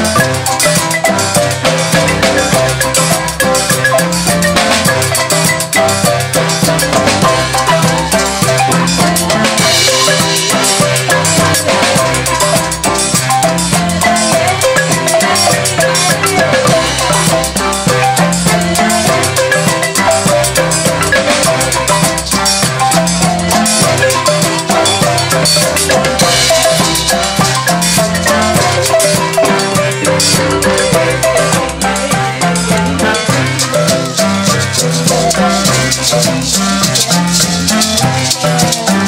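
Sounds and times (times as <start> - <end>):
drums: 0.0 - 39.0
low repeating bass line: 0.0 - 39.0
marimbas played with mallets: 0.0 - 39.0.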